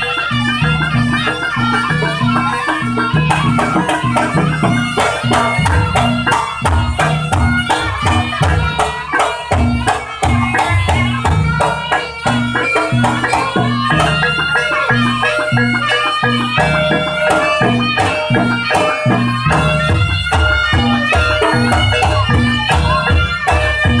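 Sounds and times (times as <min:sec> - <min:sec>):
percussion ensemble drums and gongs: 0:00.0 - 0:24.0.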